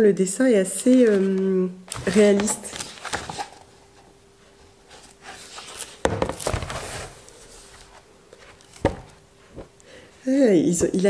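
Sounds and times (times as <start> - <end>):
faint steady hum: 0.0 - 11.0
paper pages rustling: 0.9 - 3.8, 4.9 - 9.7.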